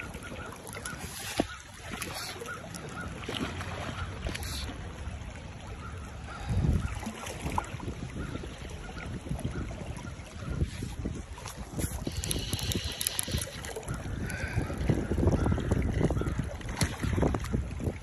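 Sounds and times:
river current flowing: 0.0s - 15.3s
wind noise on microphone: 6.2s - 18.0s.

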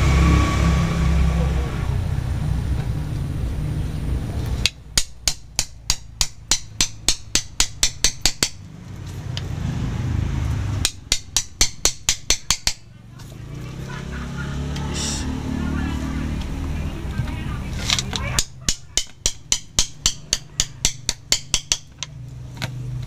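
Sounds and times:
low rumble: 0.0s - 4.7s
mallet tapping knife blade: 4.6s - 8.6s, 10.8s - 12.8s, 18.4s - 22.1s.

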